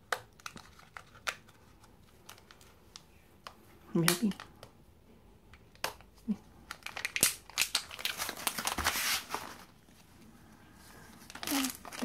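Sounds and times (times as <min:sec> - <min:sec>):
foil wrapper crinkling and tearing: 0:06.6 - 0:09.7, 0:11.2 - 0:12.0.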